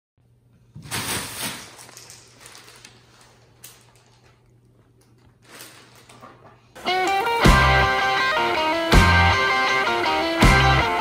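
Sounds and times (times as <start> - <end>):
plastic bag crinkling: 0.8 - 6.7.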